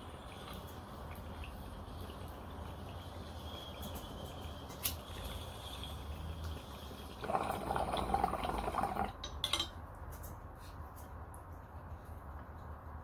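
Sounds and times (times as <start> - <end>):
water bubbling in bong: 0.0 - 9.2.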